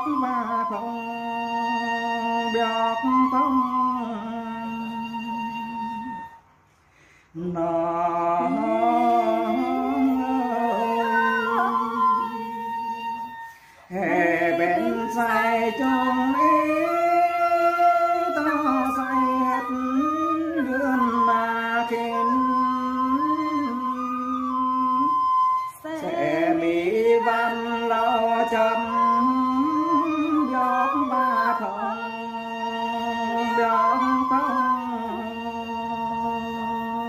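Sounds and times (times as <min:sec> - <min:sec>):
man and woman singing together: 0:07.4 - 0:13.3, 0:13.9 - 0:25.2, 0:25.8 - 0:37.0.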